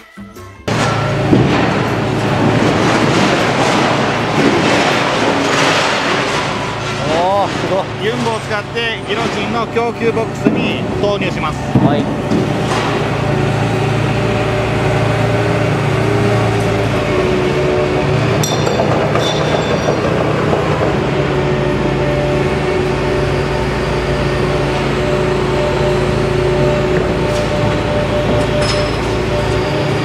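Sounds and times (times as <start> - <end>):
excavator engine and hydraulics humming: 0.0 - 30.0
high metallic ringing: 18.3 - 20.3, 28.4 - 30.0.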